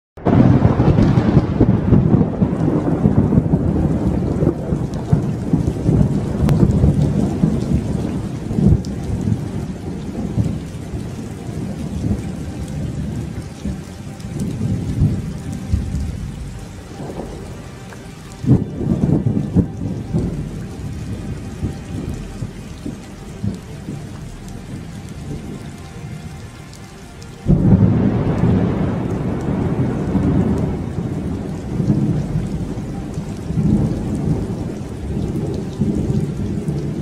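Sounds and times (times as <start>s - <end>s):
rolling thunder: 0.2s - 26.6s, 27.4s - 37.0s
steady rain: 0.2s - 37.0s.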